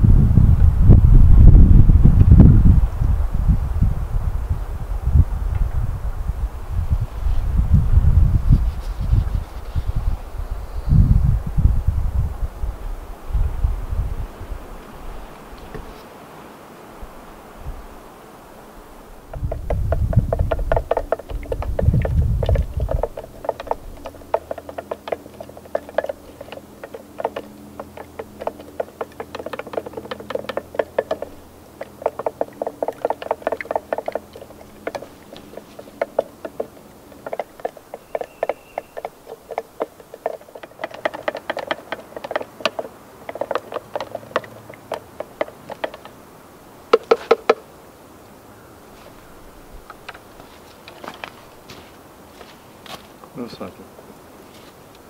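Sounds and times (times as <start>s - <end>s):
stick stirring in plastic container: 19.3s - 46.1s.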